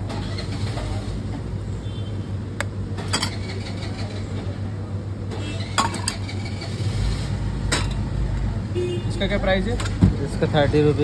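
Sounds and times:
metal utensils clinking: 3.0 - 3.5.

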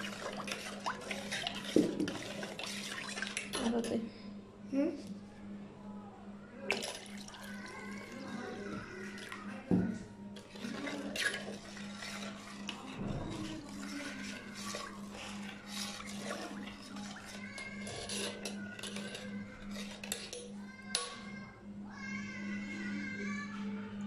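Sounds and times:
water sloshing in metal pot: 0.0 - 4.0, 6.7 - 20.5.

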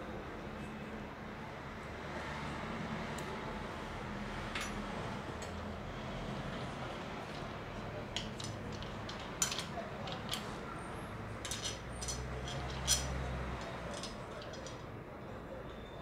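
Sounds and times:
light metallic clicks and clinks: 4.5 - 5.7, 7.2 - 15.0.

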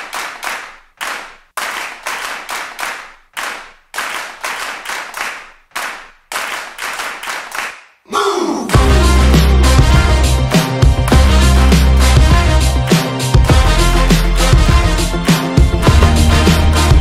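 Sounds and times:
rhythmic hand claps: 0.0 - 8.0, 8.7 - 17.0.

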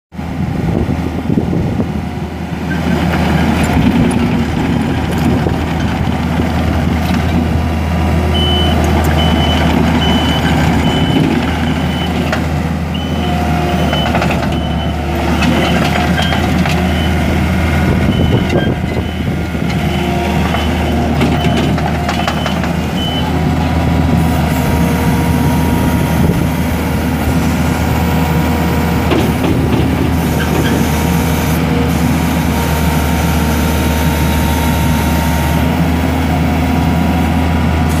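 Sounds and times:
diesel engine running: 0.2 - 38.0
backup alarm beeping: 8.3 - 12.2, 12.9 - 17.3, 18.0 - 23.3.

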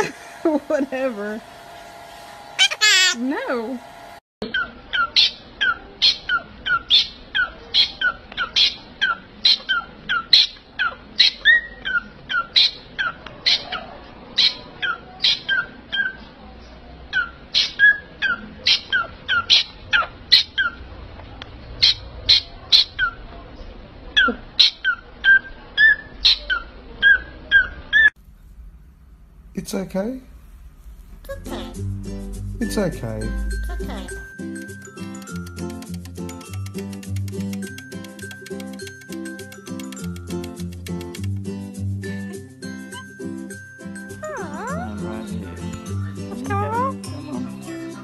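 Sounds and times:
parrot calling: 2.6 - 3.2, 44.2 - 47.1.

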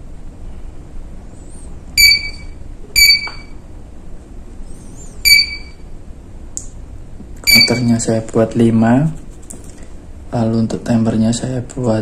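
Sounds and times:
short electronic beeps: 2.0 - 3.6, 5.2 - 5.8, 7.4 - 8.0.

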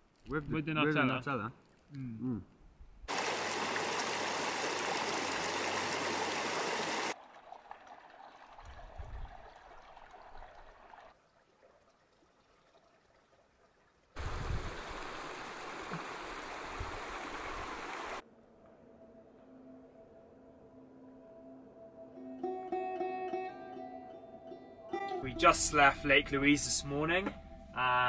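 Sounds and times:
creek rushing over rocks: 3.1 - 11.2, 14.2 - 18.2.

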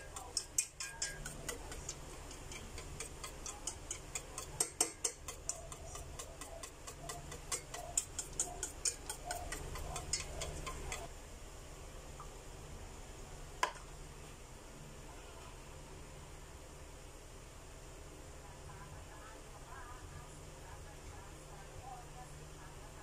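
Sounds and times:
wet stirring of batter: 0.0 - 11.1
whisk clicking against a pot: 0.0 - 11.1.

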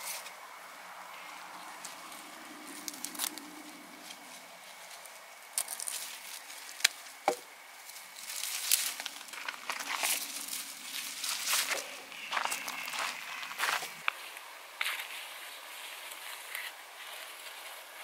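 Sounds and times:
plant stalks rustling: 1.1 - 18.0
stems cracking: 1.7 - 14.2.

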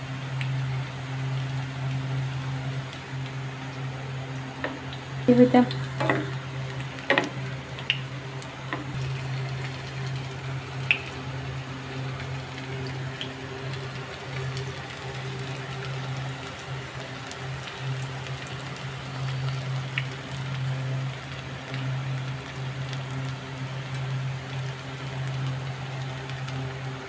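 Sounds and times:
food deep-frying in oil: 0.0 - 27.0
sharp popping of oil: 5.9 - 6.4, 7.0 - 9.1.

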